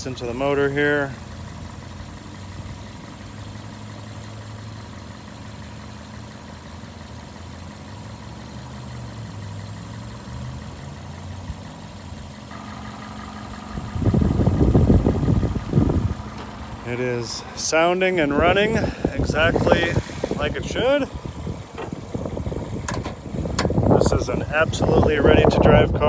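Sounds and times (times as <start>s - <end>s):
car engine idling: 0.0s - 26.0s
loud low rumble: 12.5s - 26.0s.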